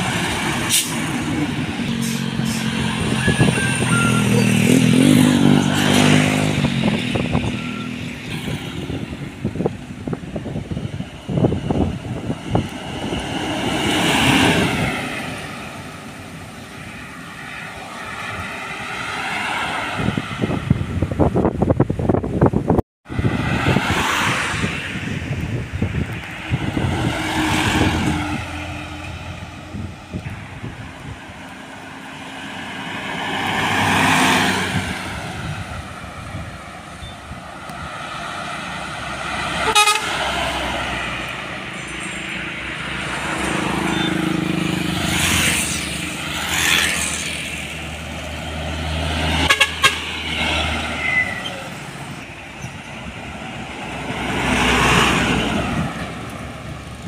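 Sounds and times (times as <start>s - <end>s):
truck diesel engine droning: 0.0s - 13.2s
traffic passing: 0.0s - 57.0s
vehicle horn: 39.6s - 40.3s, 49.4s - 50.2s.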